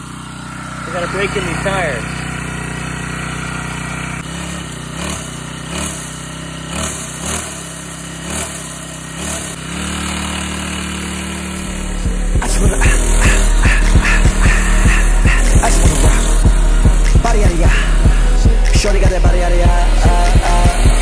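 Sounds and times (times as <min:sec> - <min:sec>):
small engine idling and revving: 0:00.0 - 0:21.0.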